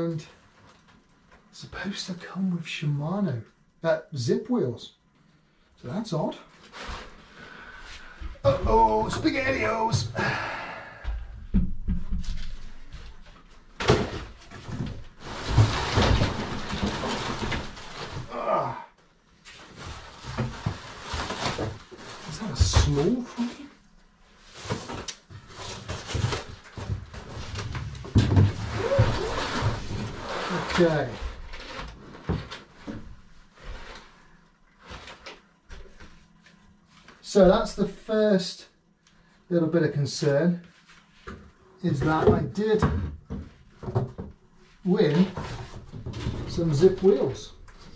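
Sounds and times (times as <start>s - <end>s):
knocks and bumps: 11.0s - 18.3s
cardboard and foam scraping: 14.7s - 18.5s, 24.5s - 32.4s.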